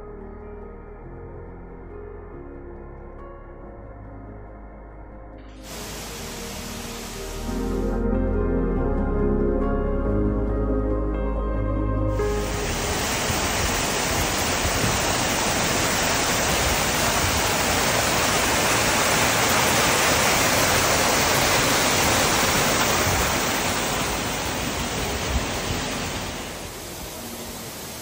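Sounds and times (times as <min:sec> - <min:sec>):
water rushing over boulders: 0:05.6 - 0:07.5, 0:12.2 - 0:28.0.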